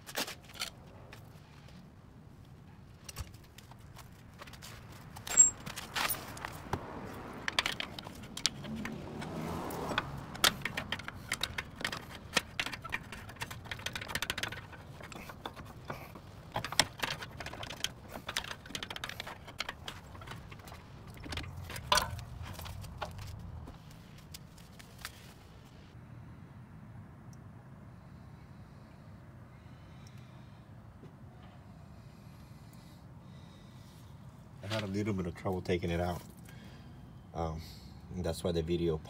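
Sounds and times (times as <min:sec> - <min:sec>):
metallic clinks and knocks: 0:05.2 - 0:06.6, 0:07.4 - 0:23.4.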